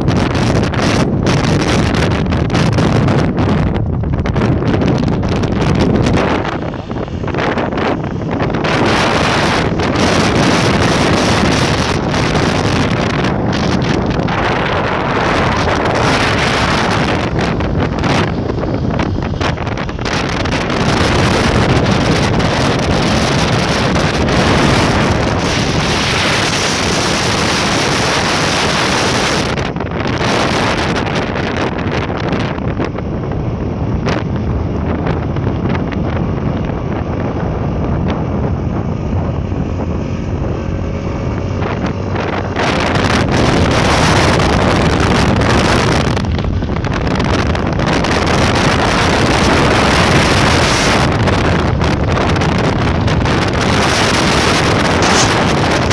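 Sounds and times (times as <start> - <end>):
motorbike engine and road drone: 0.0 - 55.9
wind buffeting microphone: 0.0 - 55.9.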